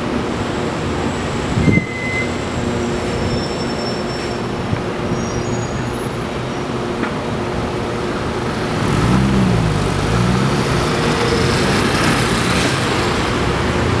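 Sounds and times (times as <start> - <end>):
city street traffic: 0.0 - 14.0
vehicle engine revving: 7.8 - 14.0.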